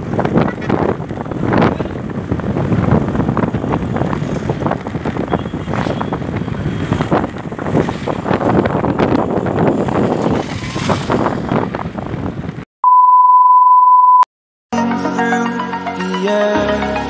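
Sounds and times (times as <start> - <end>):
motor scooter riding: 0.0 - 12.4
wind noise on microphone: 0.0 - 12.7
high test-tone beep: 12.8 - 14.3
electronic music: 14.7 - 17.0.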